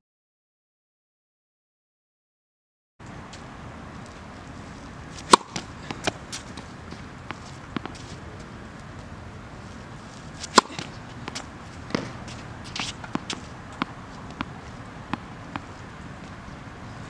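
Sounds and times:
tennis ball bouncing on hard court: 0:05.2 - 0:09.1, 0:10.0 - 0:16.5.

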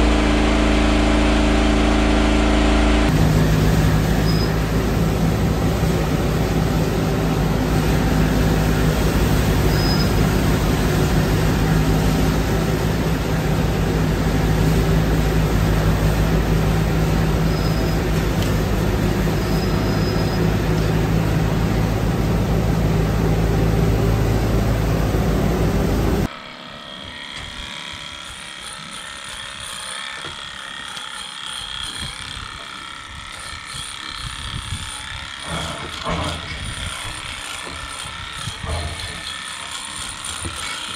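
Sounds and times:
straw chopper droning: 0:00.0 - 0:26.3.

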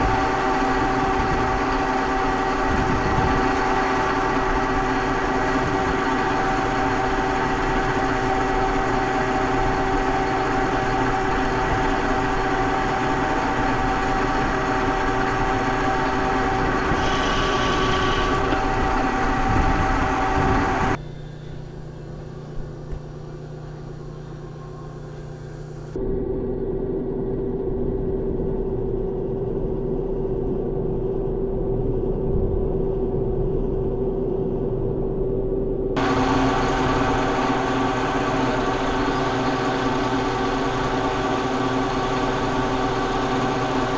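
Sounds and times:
metal lathe running: 0:00.0 - 0:21.0, 0:36.0 - 0:43.9.

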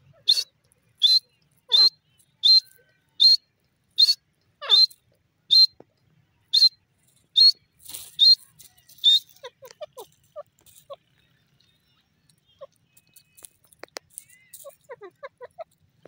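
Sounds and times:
bird shrill whistled calls: 0:00.2 - 0:03.4, 0:04.0 - 0:05.8, 0:06.5 - 0:06.8, 0:07.4 - 0:10.0.

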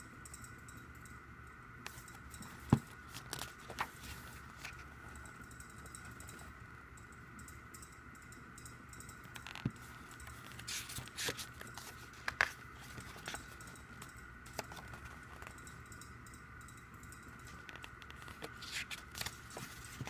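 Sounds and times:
faint high hum: 0:00.0 - 0:20.0
book pages turning: 0:02.7 - 0:04.9, 0:09.3 - 0:13.6, 0:17.6 - 0:20.0.

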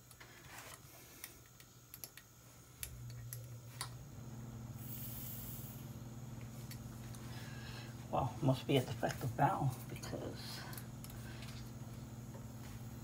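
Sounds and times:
low hum: 0:01.9 - 0:13.0
high hiss: 0:04.7 - 0:08.3.

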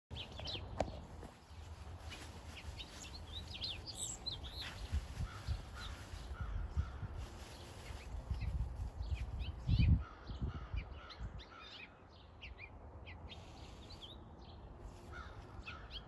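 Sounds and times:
small songbirds chirping: 0:00.1 - 0:16.0.

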